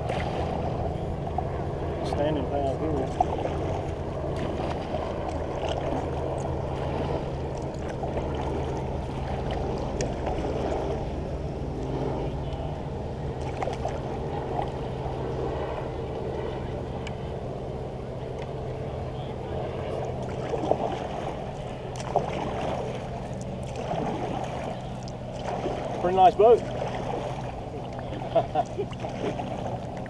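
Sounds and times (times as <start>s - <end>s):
paddle strokes in water: 0.0s - 17.2s, 18.2s - 30.0s
steady low rumble: 0.0s - 30.0s.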